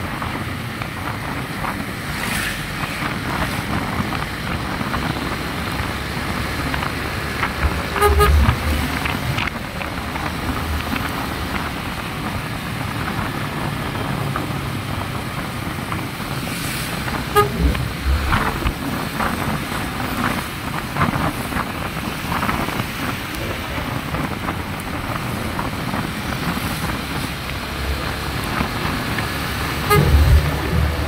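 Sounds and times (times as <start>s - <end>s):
wind buffeting microphone: 0.0s - 31.0s
horn beep: 8.0s - 8.8s, 17.3s - 18.7s, 29.9s - 30.8s.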